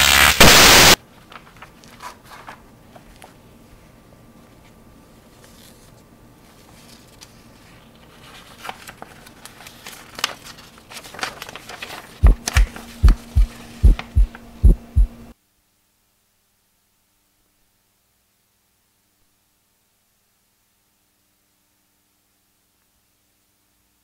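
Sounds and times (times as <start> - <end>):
heartbeat thumps: 12.2 - 15.3
low hum: 12.2 - 15.3.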